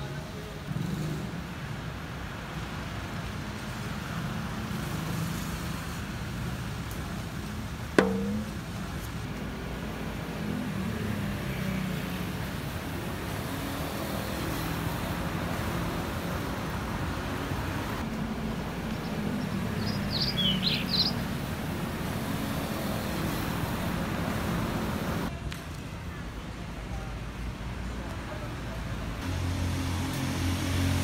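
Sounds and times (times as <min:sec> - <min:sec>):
street traffic noise: 0:00.0 - 0:31.0
bird chirps: 0:18.0 - 0:25.3.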